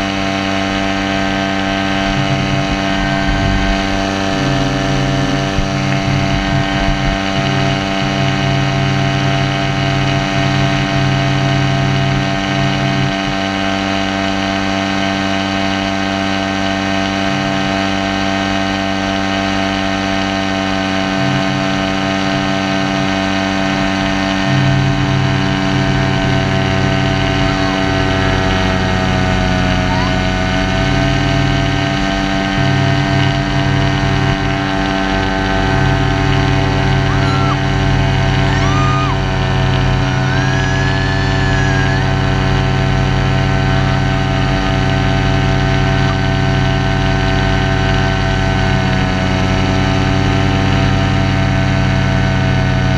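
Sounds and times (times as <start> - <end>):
wind rumbling on microphone: 0.0 - 11.3
paramotor engine running: 0.0 - 52.9.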